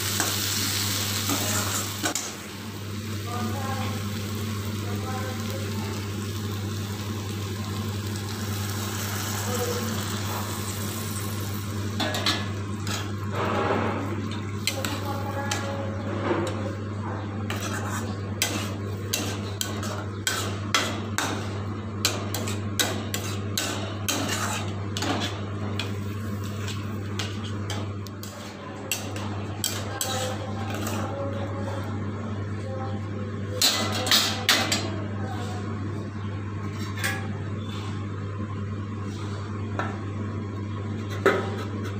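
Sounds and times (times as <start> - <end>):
faint frying hiss: 0.0 - 16.0
metal spatula scraping a pan: 17.5 - 20.7, 22.3 - 25.4, 28.9 - 31.1.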